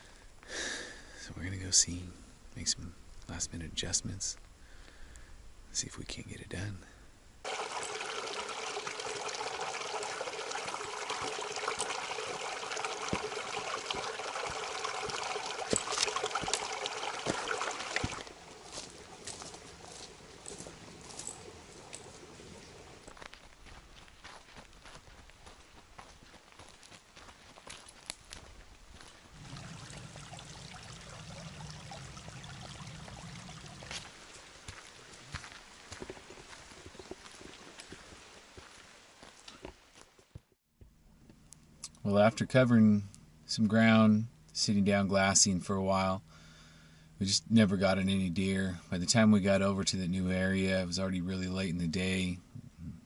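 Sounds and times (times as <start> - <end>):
creek water splashing over stones: 7.4 - 23.2, 29.0 - 39.4.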